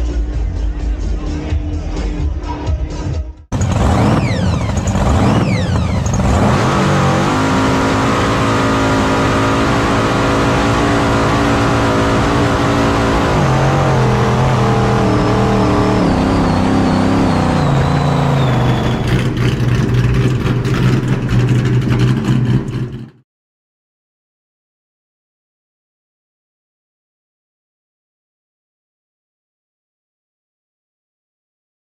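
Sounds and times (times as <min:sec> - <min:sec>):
jet boat engine revving: 0:03.5 - 0:23.2.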